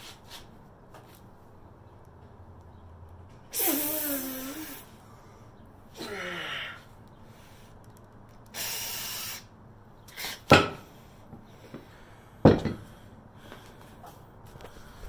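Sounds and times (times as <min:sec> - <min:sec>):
short hiss: 0:03.6 - 0:04.8, 0:08.5 - 0:09.4.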